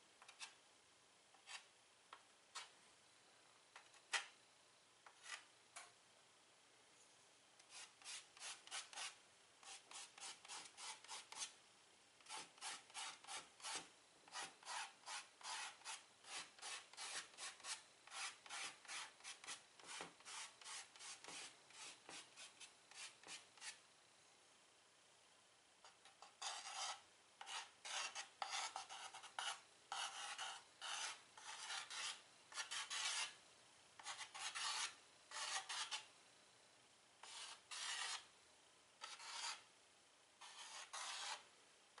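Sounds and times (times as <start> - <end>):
chalk scratching on chalkboard: 1.4 - 1.7, 5.1 - 5.5, 7.7 - 11.5, 12.2 - 23.8, 26.0 - 33.4, 34.0 - 36.1, 37.2 - 38.3, 39.0 - 39.6, 40.4 - 41.4.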